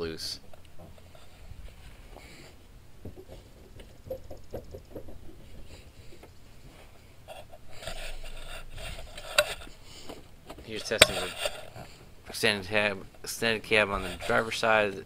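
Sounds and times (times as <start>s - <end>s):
rubbing and handling noise: 0.4s - 15.0s
sharp click: 11.0s - 11.3s.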